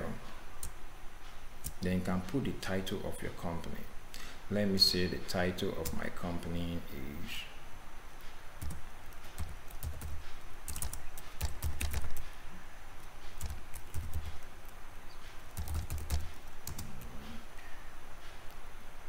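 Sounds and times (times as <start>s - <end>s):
keyboard keystrokes clicking: 13.4s - 14.5s.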